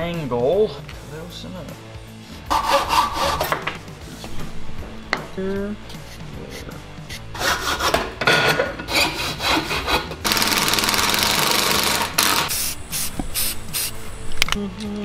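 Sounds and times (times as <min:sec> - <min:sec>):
hand saw cutting wood: 0:02.4 - 0:03.7, 0:06.6 - 0:08.2, 0:08.9 - 0:12.5
power driver driving screw: 0:08.9 - 0:12.5.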